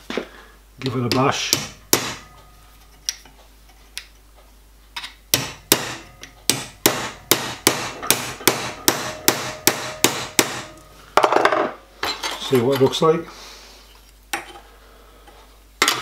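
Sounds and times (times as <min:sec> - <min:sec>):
hammer blows on metal: 0:05.4 - 0:11.0.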